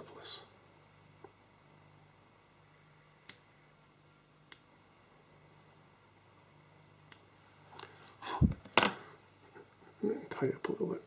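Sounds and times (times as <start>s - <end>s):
small sharp clicks: 3.2s - 3.4s, 4.5s - 4.7s, 7.1s - 7.3s.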